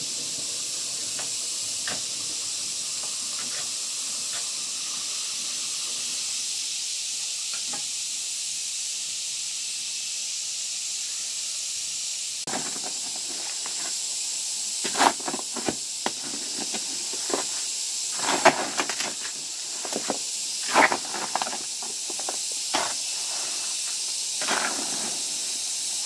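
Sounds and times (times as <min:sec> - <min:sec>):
steady high hiss: 0:00.0 - 0:26.0
bricklaying knocks and scrapes: 0:12.5 - 0:14.0, 0:14.8 - 0:25.1.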